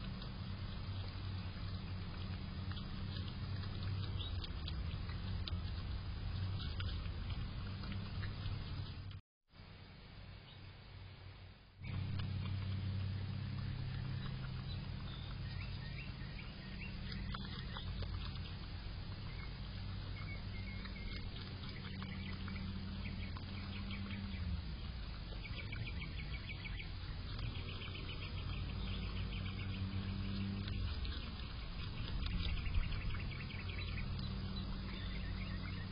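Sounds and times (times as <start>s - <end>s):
groundhog chewing vegetable: 0.0s - 9.2s, 11.8s - 35.9s
low steady hum: 0.0s - 35.9s.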